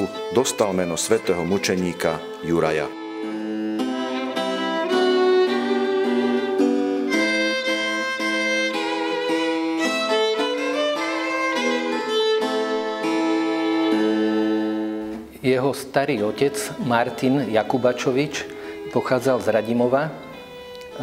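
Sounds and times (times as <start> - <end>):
spinet plucked chords: 0.0 - 15.4
bowed violin melody: 0.0 - 21.0.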